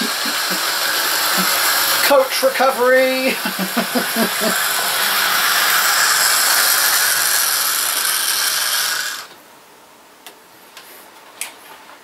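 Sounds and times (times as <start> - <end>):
model train running on track: 0.0 - 9.3.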